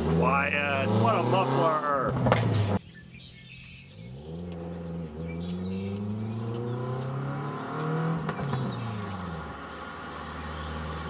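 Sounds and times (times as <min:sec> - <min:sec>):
car engine approaching: 0:00.0 - 0:11.0
birds chirping faintly: 0:02.8 - 0:11.0.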